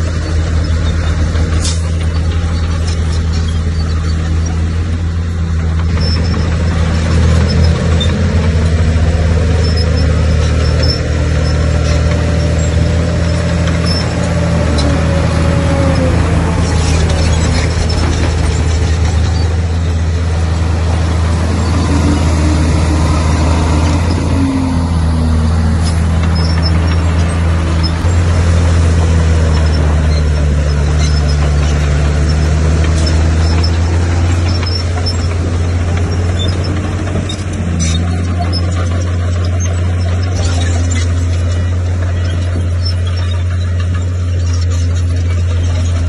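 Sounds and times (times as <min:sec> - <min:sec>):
bulldozer diesel engine droning: 0:00.0 - 0:46.0
faint sliding squeal: 0:09.5 - 0:24.4, 0:25.5 - 0:28.2, 0:29.4 - 0:46.0.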